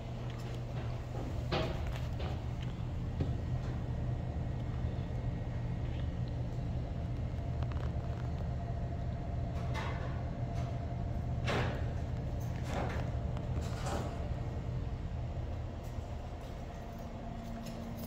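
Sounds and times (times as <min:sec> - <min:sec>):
faint steady hum: 0:00.0 - 0:18.0
low room rumble: 0:00.0 - 0:18.0.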